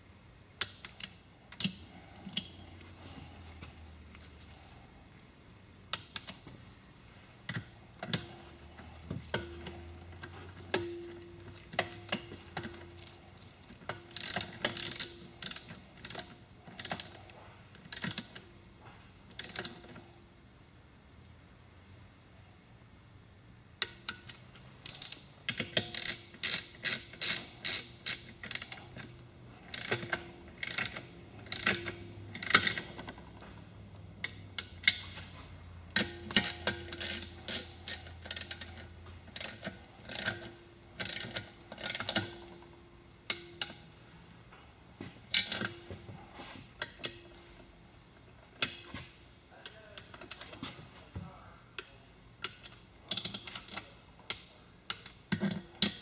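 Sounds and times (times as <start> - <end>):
socket wrench ratcheting: 14.1 - 17.2, 17.9 - 18.4, 19.4 - 19.9, 24.8 - 29.1, 29.7 - 33.2, 36.0 - 42.4.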